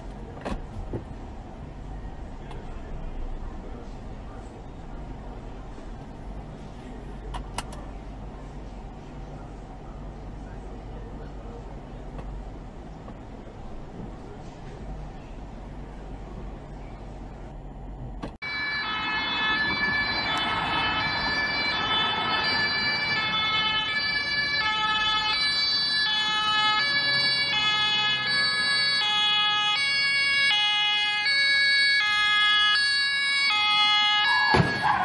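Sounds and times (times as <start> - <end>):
car road rumble: 0.0 - 18.5
two-tone ambulance siren: 18.4 - 35.0
car crash: 34.3 - 35.0.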